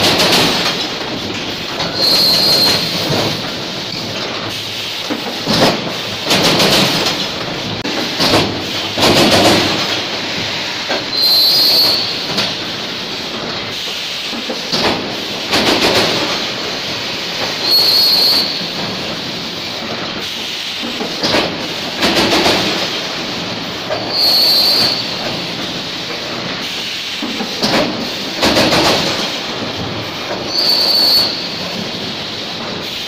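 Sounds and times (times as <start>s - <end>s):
welding machine clattering: 0.0s - 33.0s
compressed air hiss: 8.0s - 25.2s.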